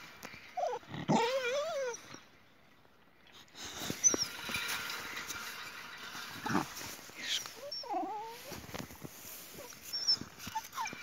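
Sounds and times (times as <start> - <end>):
dogs whining and whimpering: 0.5 - 2.3, 3.9 - 4.7, 7.3 - 8.7, 9.5 - 11.0.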